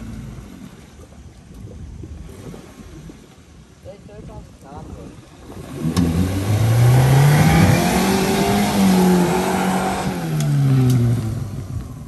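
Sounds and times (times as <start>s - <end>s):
mud and water splashing: 0.0s - 12.0s
engine revving hard: 5.6s - 11.6s.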